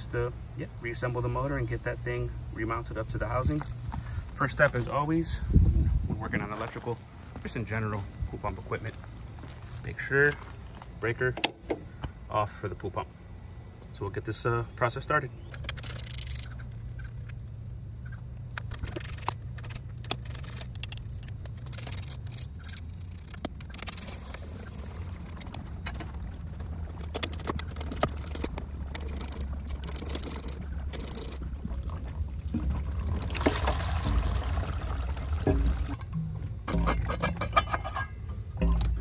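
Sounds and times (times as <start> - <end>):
steady low hum: 0.0 - 39.0
socket wrench clicking on bolts: 15.5 - 16.5, 18.6 - 24.4, 27.2 - 31.4.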